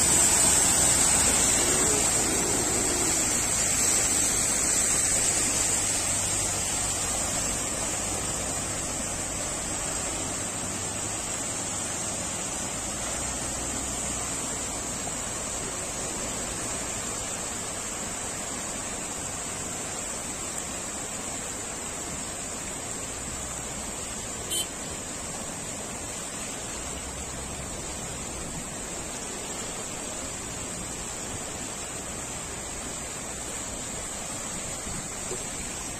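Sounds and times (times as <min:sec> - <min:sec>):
floodwater rushing: 0:00.0 - 0:35.9.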